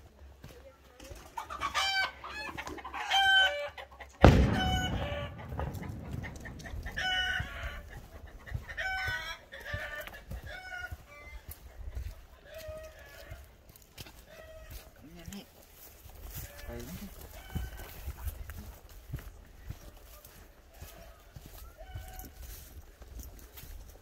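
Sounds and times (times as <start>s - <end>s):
chickens and rooster calling: 1.3s - 13.6s, 14.2s - 14.9s, 16.4s - 18.4s, 20.7s - 22.8s.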